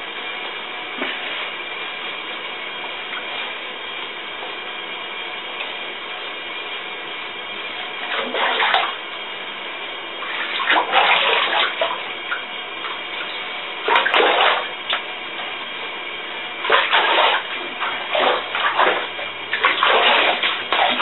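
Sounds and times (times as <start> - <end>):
bathwater splashing: 8.0 - 9.1, 10.2 - 15.6, 16.6 - 21.0.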